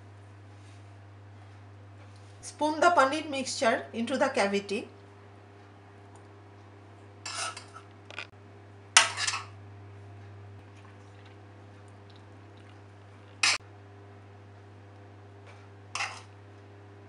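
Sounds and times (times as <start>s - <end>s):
spoon scraping ceramic dish: 7.2s - 7.9s, 16.0s - 16.3s.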